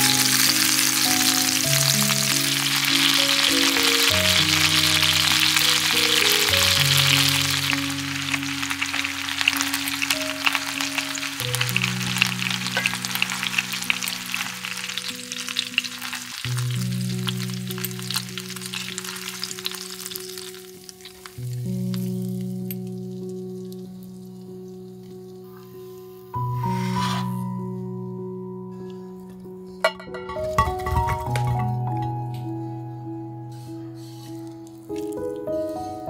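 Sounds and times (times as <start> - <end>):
chicken sizzling in hot oil: 0.0 - 27.4
soft background music chords: 0.0 - 36.0
oil crackling pops: 34.5 - 35.6.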